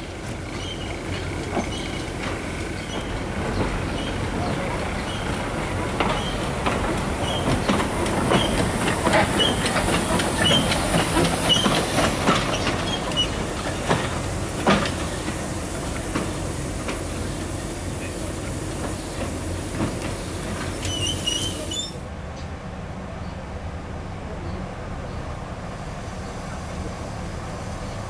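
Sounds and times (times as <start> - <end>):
train wheels knocking on rail joints: 0.0 - 21.9
steam hissing: 0.0 - 22.1, 25.2 - 28.0.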